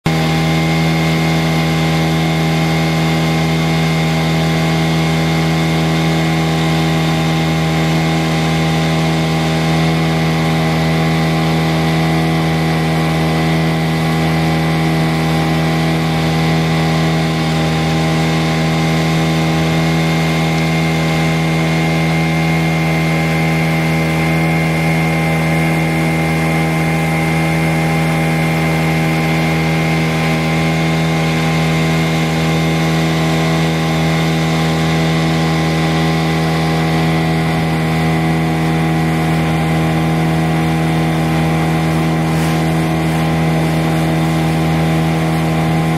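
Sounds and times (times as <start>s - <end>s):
outboard motor running: 0.0s - 45.9s.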